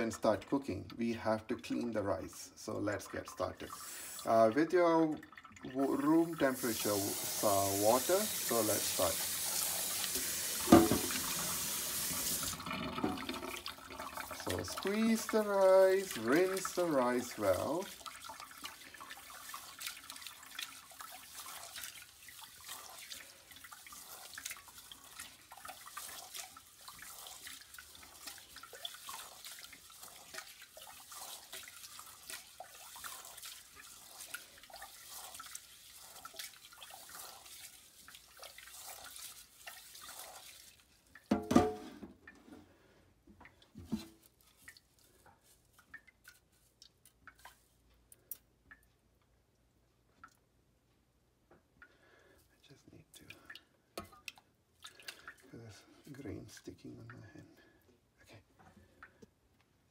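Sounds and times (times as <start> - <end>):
water splashes and drips: 0.0 - 42.6, 43.3 - 50.6, 51.5 - 57.8, 58.6 - 59.5
hand swishing rice in water: 13.6 - 41.2, 44.2 - 47.8.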